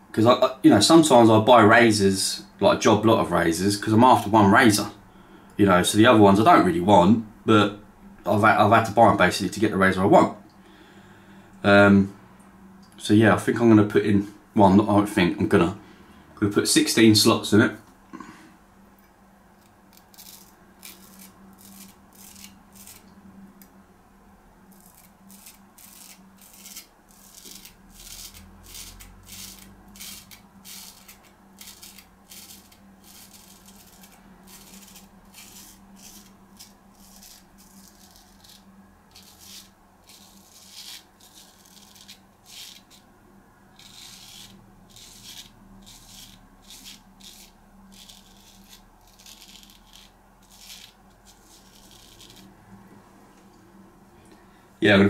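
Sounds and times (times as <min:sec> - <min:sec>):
steady low hum: 0:00.0 - 0:55.0
razor scraping stubble: 0:19.6 - 0:23.1, 0:24.7 - 0:43.1, 0:43.7 - 0:52.6.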